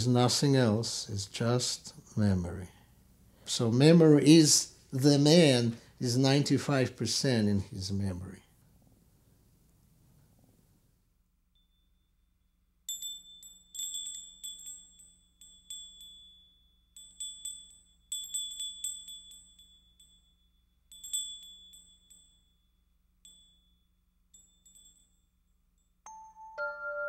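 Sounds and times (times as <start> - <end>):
metal wind chime tinkling: 11.5 - 27.0.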